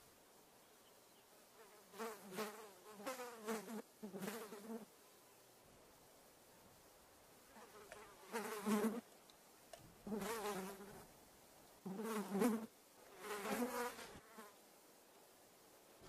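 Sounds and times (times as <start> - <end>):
faint background hiss: 0.0 - 16.0
flying insect buzzing: 1.6 - 4.9, 7.5 - 9.0, 10.0 - 11.0, 11.8 - 14.6.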